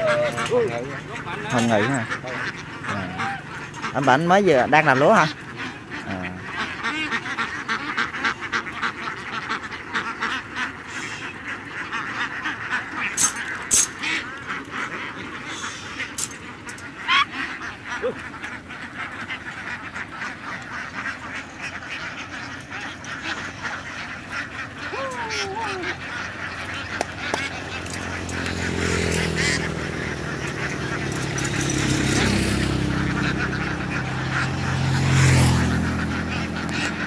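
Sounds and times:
ducks quacking: 0.0s - 37.0s.

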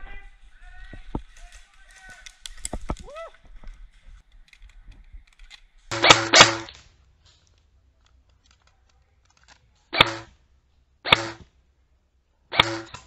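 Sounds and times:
airsoft rifle shots: 5.9s - 6.8s, 9.9s - 10.4s, 11.0s - 11.5s, 12.5s - 13.0s.

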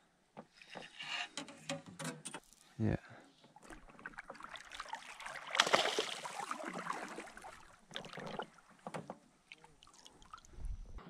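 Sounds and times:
fish splashing at water surface: 3.7s - 8.8s.

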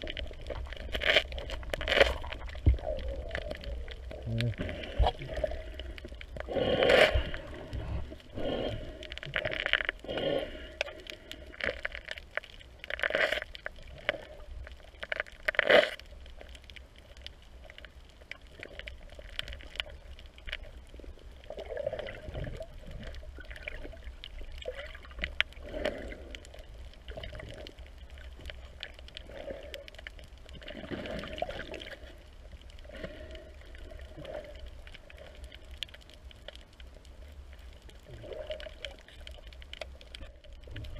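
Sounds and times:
muffled water sloshing underwater: 0.0s - 40.9s.

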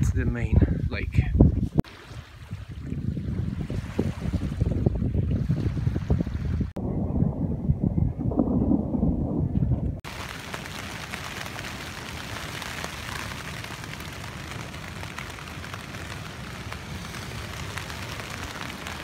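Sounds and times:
rain on tent fabric: 10.0s - 19.0s.

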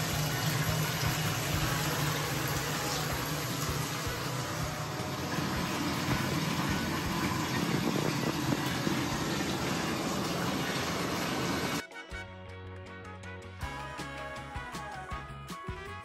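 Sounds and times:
water pouring into bathtub: 0.0s - 11.8s.

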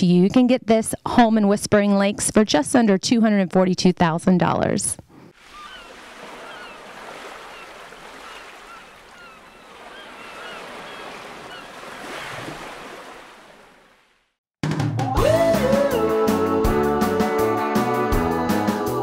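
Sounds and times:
wind and water rushing: 5.4s - 14.3s.

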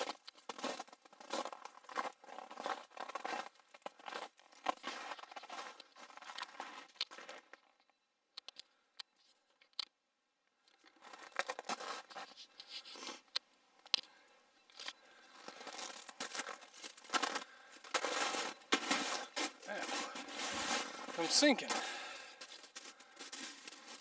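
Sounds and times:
footsteps crunching in snow: 0.0s - 7.6s, 11.0s - 13.2s, 15.3s - 24.0s.

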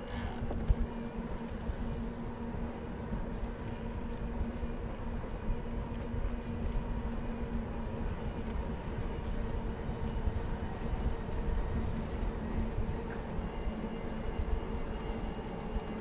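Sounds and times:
low uneven rumble: 0.0s - 16.0s.

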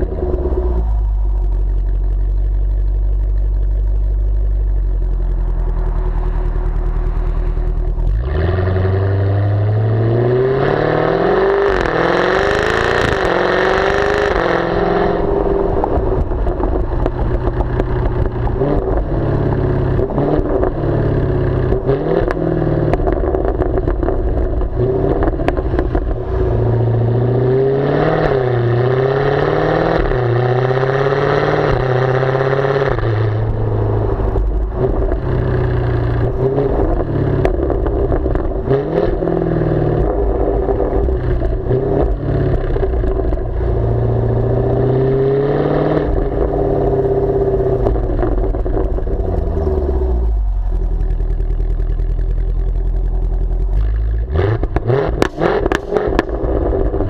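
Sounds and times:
car engine idling: 0.0s - 9.9s, 13.3s - 27.6s, 32.9s - 45.1s, 46.1s - 57.0s
car engine revving: 0.0s - 57.0s.

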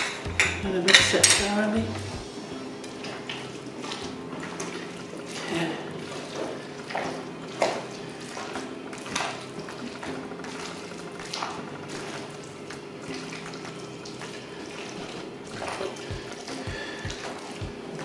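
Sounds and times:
squelching stirring of potato salad: 2.9s - 18.0s.

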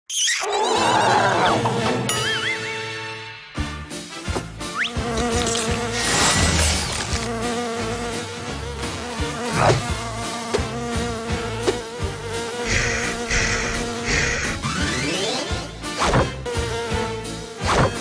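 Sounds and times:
cartoon fly buzzing: 4.7s - 18.0s.

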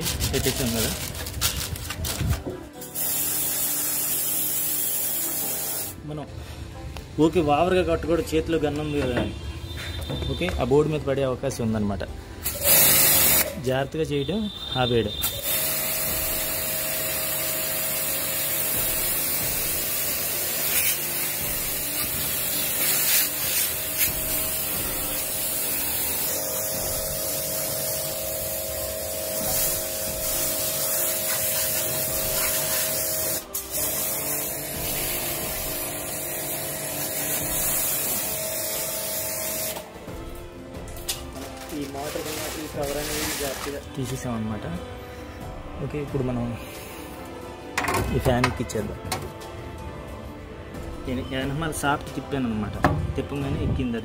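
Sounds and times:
water spray hissing: 2.8s - 6.0s, 12.5s - 13.6s, 15.2s - 39.8s.

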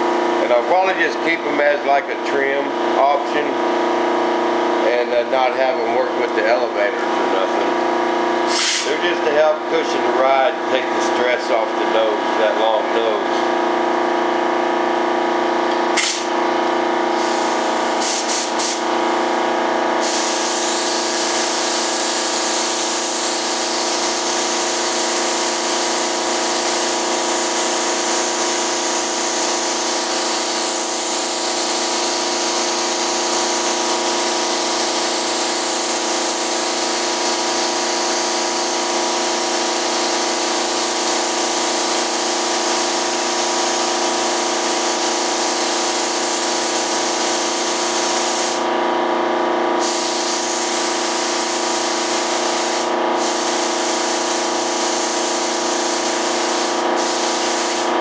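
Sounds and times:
air compressor hum: 0.0s - 58.0s
spray gun hissing: 8.5s - 9.1s, 16.0s - 16.3s, 17.1s - 18.9s, 20.0s - 24.4s, 44.3s - 48.6s, 49.8s - 57.9s.

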